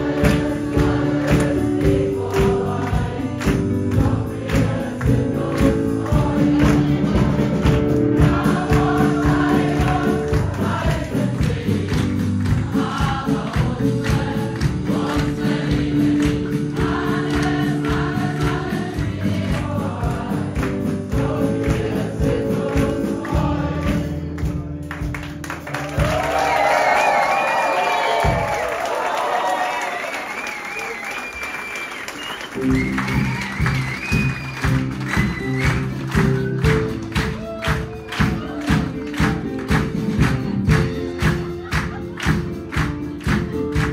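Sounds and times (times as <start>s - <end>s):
group singing in chorus: 0.0s - 24.4s
music with steady beat: 0.0s - 26.4s, 32.6s - 43.9s.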